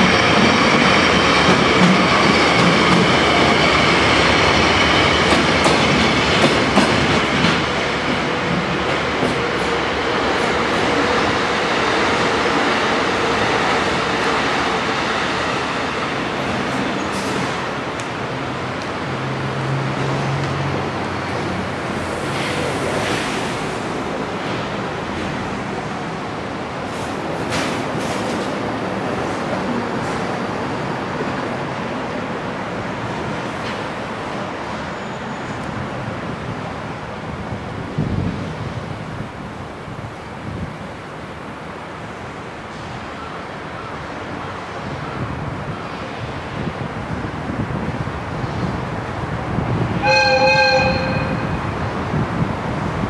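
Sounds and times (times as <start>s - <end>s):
wind noise on microphone: 35.6s - 41.5s, 44.2s - 53.0s
train horn: 50.0s - 51.7s.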